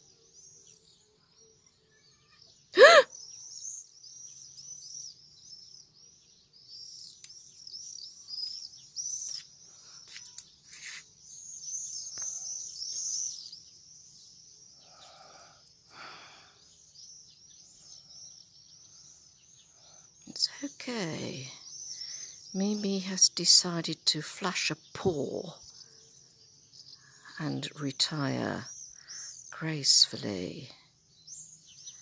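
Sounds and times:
loud pitched cry: 0:02.8 - 0:03.1.

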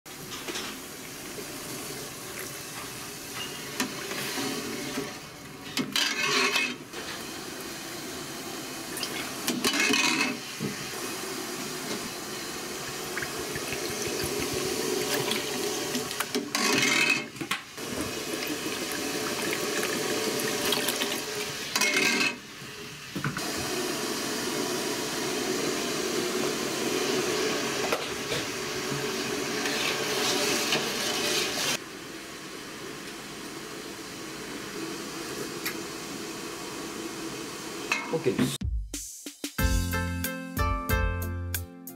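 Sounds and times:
metal ladle stirring: 0:05.8 - 0:06.8
liquid bubbling in pot: 0:12.8 - 0:16.6
liquid pouring and splashing: 0:12.8 - 0:16.8, 0:17.8 - 0:21.6.

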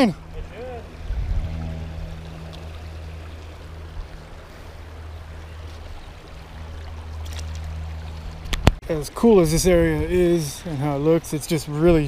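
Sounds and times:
low hum: 0:00.0 - 0:08.8
water running over rocks: 0:00.0 - 0:12.0.

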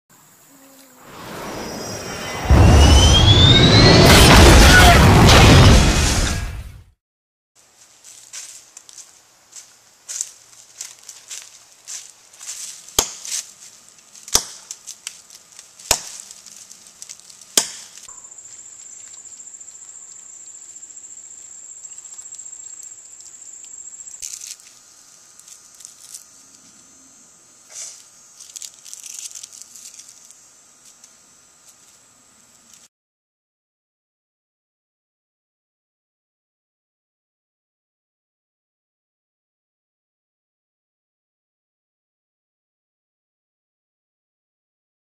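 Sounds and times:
high insect buzz: 0:00.1 - 0:02.4, 0:08.0 - 0:32.9
footsteps crunching dry leaves: 0:07.6 - 0:19.4, 0:24.2 - 0:26.3, 0:27.7 - 0:31.0
twigs snapping: 0:12.9 - 0:18.1, 0:24.2 - 0:26.2, 0:27.7 - 0:31.1.

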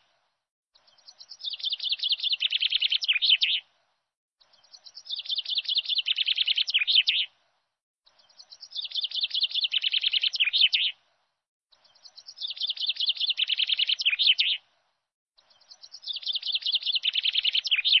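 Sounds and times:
songbird trilling: 0:00.8 - 0:03.6, 0:04.5 - 0:07.3, 0:08.2 - 0:11.0, 0:11.8 - 0:14.6, 0:15.5 - 0:18.0.

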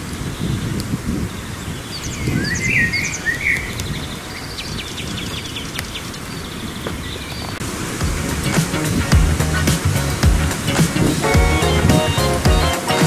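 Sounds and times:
songbirds singing: 0:00.0 - 0:07.6, 0:10.6 - 0:13.0
wind rumble on microphone: 0:00.0 - 0:12.2.

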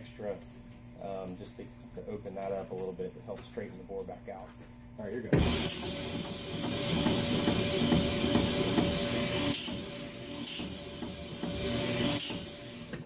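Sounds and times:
motor hum: 0:05.2 - 0:13.0
cylinder hone grinding: 0:05.4 - 0:13.0.

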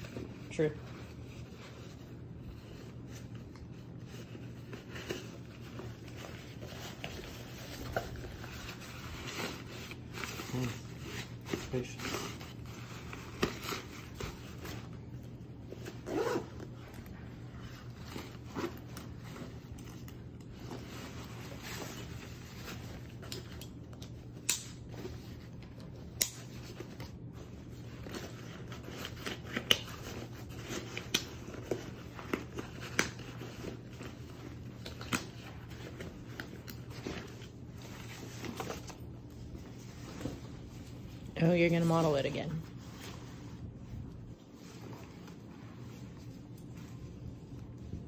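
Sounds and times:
backpack fabric rustling: 0:00.1 - 0:23.2
zipper zipping: 0:15.9 - 0:16.7.

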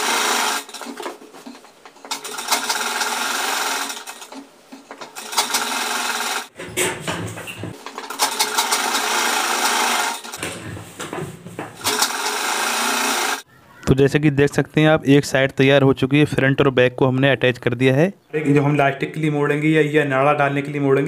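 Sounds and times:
sewing machine stitching: 0:00.0 - 0:10.6, 0:11.8 - 0:13.4.

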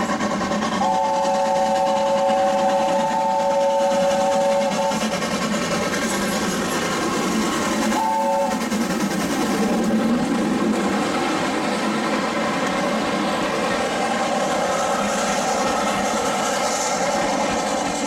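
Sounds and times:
steam locomotive working hard: 0:00.0 - 0:18.0
steam whistle blast: 0:00.8 - 0:05.1, 0:08.0 - 0:08.6.

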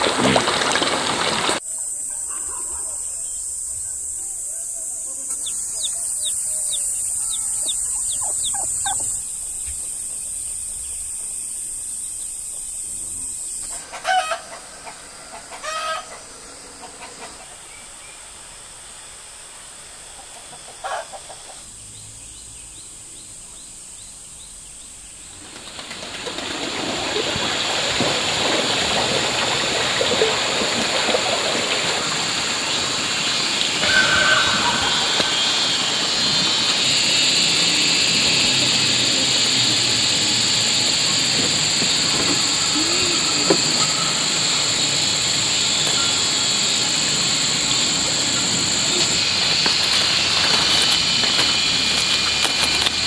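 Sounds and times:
steady high drone: 0:01.8 - 0:13.5, 0:31.8 - 0:53.0
chickens calling: 0:05.1 - 0:11.0, 0:13.7 - 0:17.7, 0:20.1 - 0:21.7, 0:28.9 - 0:37.2, 0:38.1 - 0:53.0
rooster crowing: 0:13.9 - 0:16.2, 0:33.8 - 0:36.2
broad rushing noise: 0:26.4 - 0:53.0.

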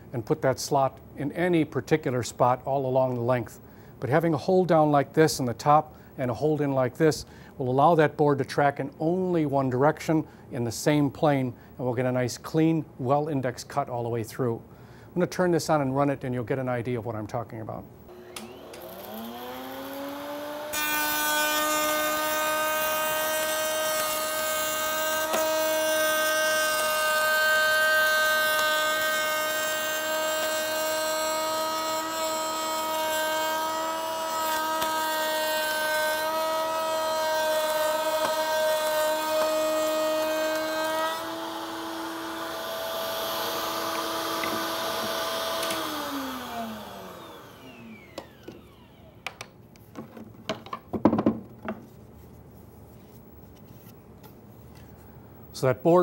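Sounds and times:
router bit cutting wood: 0:18.1 - 0:49.5
router motor whine: 0:18.1 - 0:49.5.

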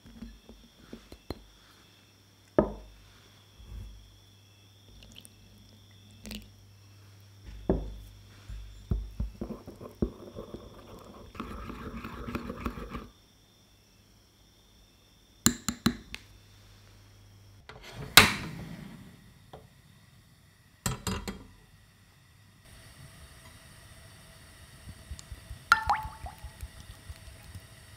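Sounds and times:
metal clank on stove: 0:20.9 - 0:21.5.

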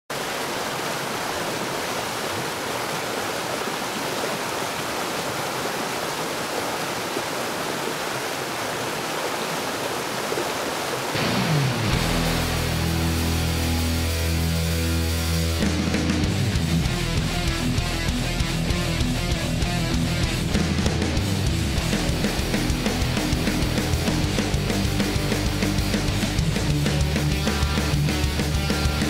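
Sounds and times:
creek rushing over boulders: 0:00.1 - 0:12.1
loud rock music: 0:11.2 - 0:29.0.

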